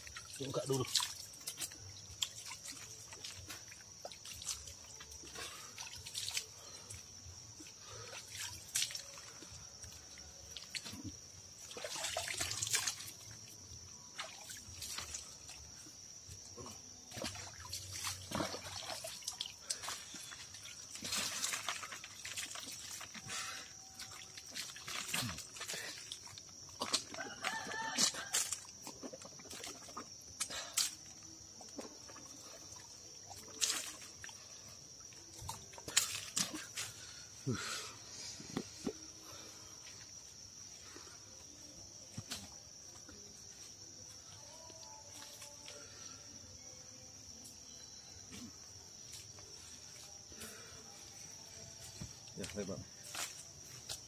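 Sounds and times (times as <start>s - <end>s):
shallow stream trickling: 0.0s - 48.0s
insects droning: 0.0s - 54.0s
water splashing onto face: 0.2s - 1.6s, 10.7s - 13.2s, 17.1s - 31.0s.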